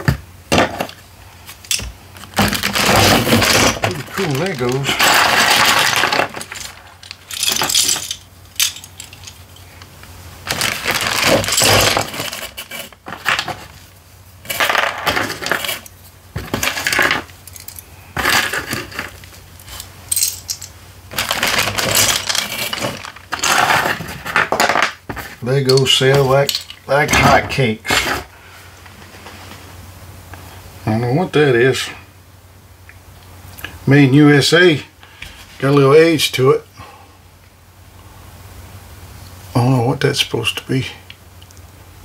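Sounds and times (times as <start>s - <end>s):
plastic bricks clattering: 1.7s - 9.7s, 10.4s - 13.8s, 14.4s - 28.3s.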